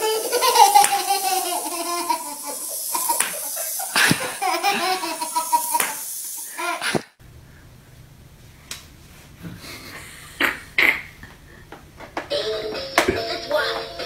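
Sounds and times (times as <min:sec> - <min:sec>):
high-pitched laughter: 0:00.0 - 0:07.0.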